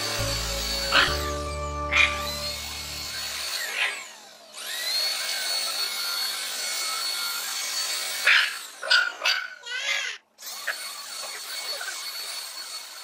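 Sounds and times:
vacuum cleaner motor whine: 0:00.0 - 0:06.3.

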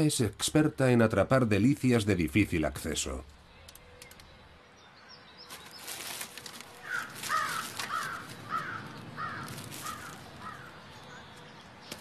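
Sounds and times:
crow rustling paper plate: 0:05.5 - 0:11.4
crow cawing: 0:06.8 - 0:11.3.

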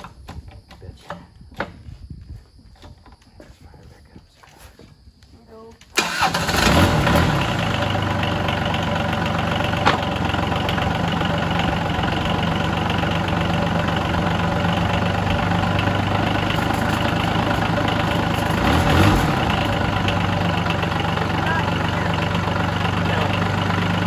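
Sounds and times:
diesel engine idling: 0:06.0 - 0:24.0.

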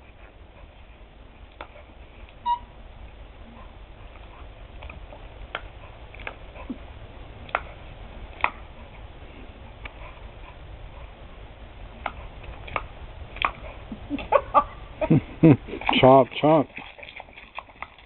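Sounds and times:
low steady rumble: 0:00.0 - 0:18.0
dog biting at water: 0:03.6 - 0:09.1, 0:12.0 - 0:14.3, 0:16.6 - 0:18.0.

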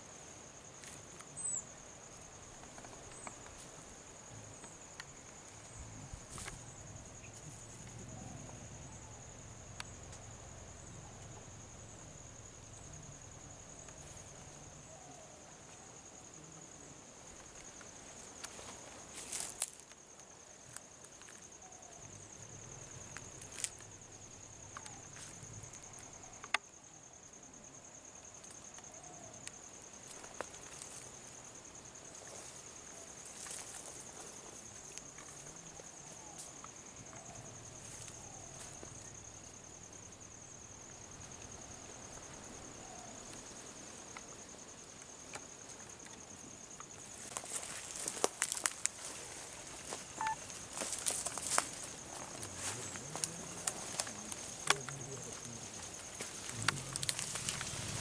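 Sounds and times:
insect trill: 0:00.0 - 0:58.0
rustling and snapping: 0:50.8 - 0:58.0.

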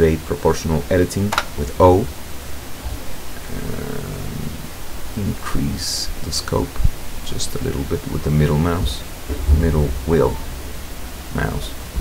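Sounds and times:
narrator speaking: 0:00.0 - 0:02.1, 0:02.9 - 0:10.6, 0:11.3 - 0:12.0
background hiss: 0:00.0 - 0:12.0
low hum: 0:01.6 - 0:05.6, 0:06.8 - 0:12.0.

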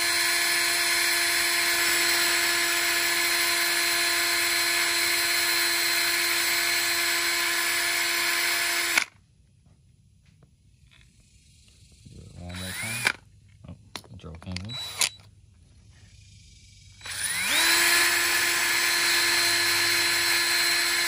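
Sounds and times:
electric drill whining: 0:00.0 - 0:09.1, 0:12.4 - 0:13.2, 0:14.6 - 0:15.3, 0:17.0 - 0:21.0.

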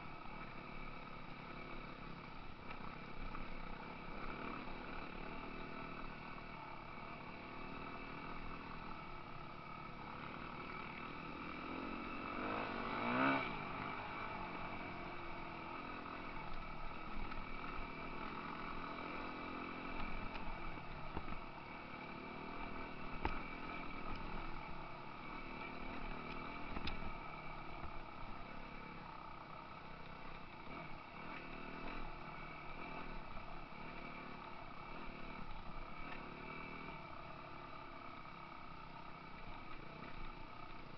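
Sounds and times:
dirt bike engines running: 0:00.0 - 0:40.9
engine revving: 0:10.2 - 0:16.5.

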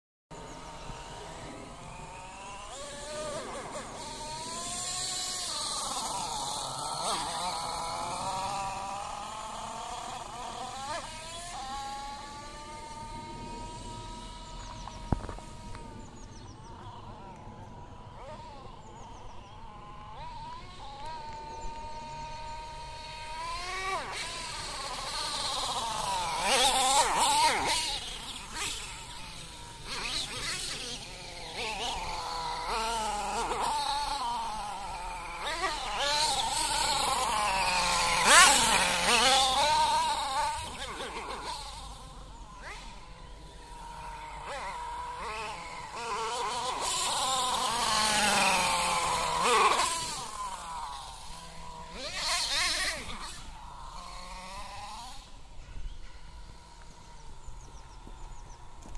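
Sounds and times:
rc truck engine revving: 0:00.3 - 0:58.9.

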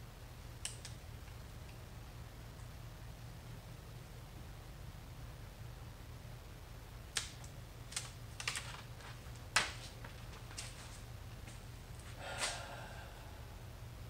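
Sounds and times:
plastic stencil peeling clicks: 0:07.1 - 0:10.7
crinkling rustle: 0:07.9 - 0:12.2.

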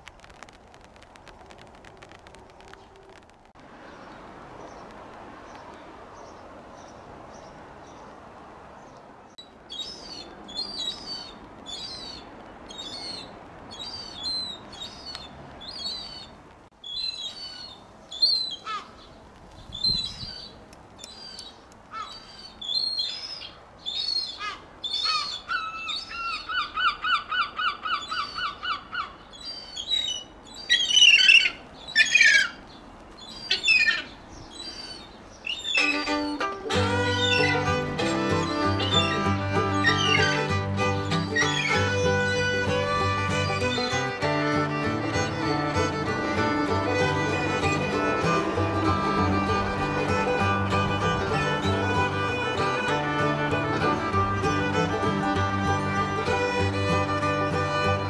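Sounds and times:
gull calling: 0:33.4 - 0:58.0.

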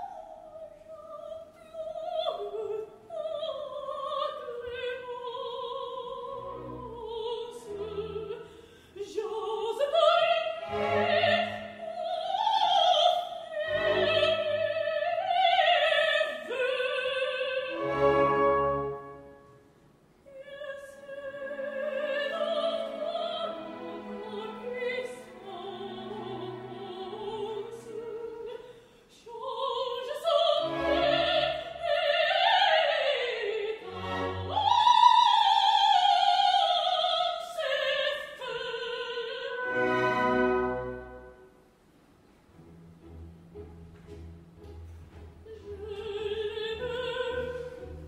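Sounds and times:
operatic soprano singing: 0:00.0 - 0:18.8, 0:20.2 - 0:41.2, 0:45.4 - 0:48.0
orchestra playing: 0:10.6 - 0:12.0, 0:17.7 - 0:19.7, 0:22.4 - 0:28.1, 0:33.8 - 0:34.8, 0:39.6 - 0:41.6, 0:42.4 - 0:48.0.

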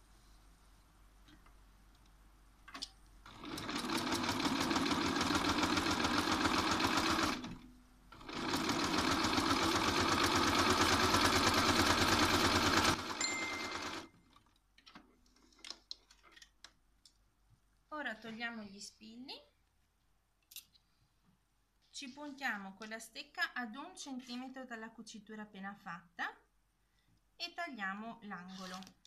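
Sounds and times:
electric sewing machine stitching: 0:03.3 - 0:07.6, 0:08.2 - 0:14.1
brief high tone: 0:13.2 - 0:13.9.

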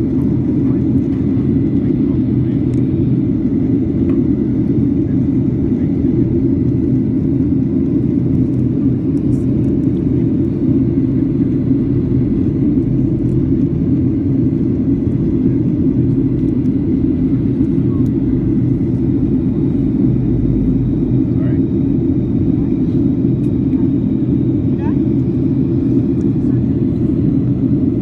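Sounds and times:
jet engines droning: 0:00.0 - 0:28.0
low hum: 0:07.9 - 0:28.0.

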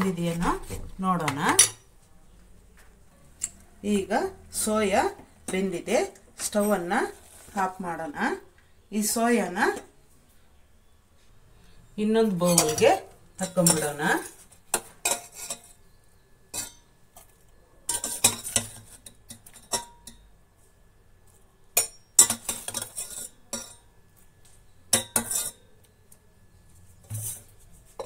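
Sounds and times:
metal skimmer clinking on pots: 0:01.1 - 0:01.9, 0:12.4 - 0:15.8, 0:16.5 - 0:17.0, 0:17.9 - 0:20.3, 0:21.7 - 0:23.9, 0:24.9 - 0:25.8.

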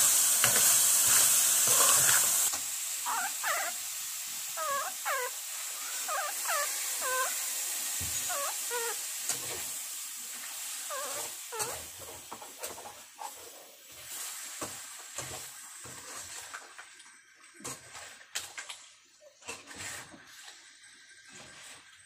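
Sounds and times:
faint frying sizzle: 0:00.0 - 0:22.0
utensils and dishes clicking: 0:00.4 - 0:02.6.

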